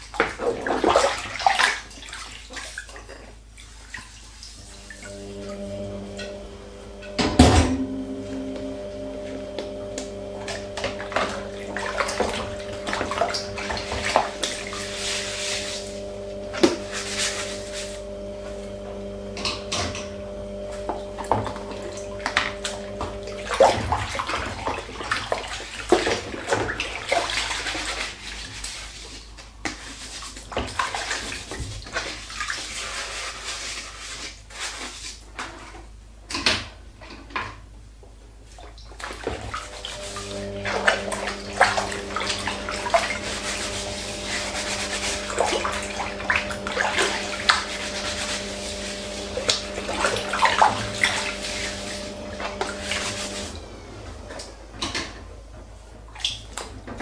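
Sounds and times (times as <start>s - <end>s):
sponge scrubbing plates: 0.0s - 35.9s, 38.5s - 53.8s
water sloshing and splashing: 0.0s - 37.6s, 38.4s - 57.0s
steady low hum: 4.6s - 24.8s, 39.6s - 56.2s.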